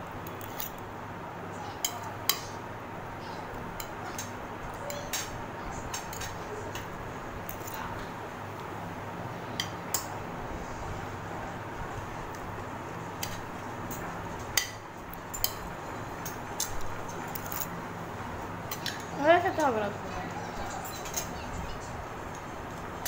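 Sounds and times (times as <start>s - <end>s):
low background hum: 0.0s - 23.0s
spoons clinking on plates: 1.8s - 2.6s, 3.8s - 7.9s, 13.2s - 17.7s, 18.7s - 19.8s, 20.5s - 21.4s.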